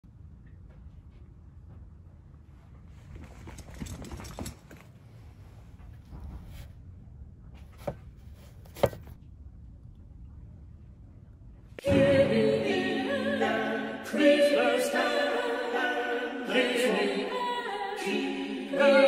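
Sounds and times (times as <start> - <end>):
footsteps and shuffling: 0.3 - 9.2
book pulled from shelf knock: 7.7 - 9.2.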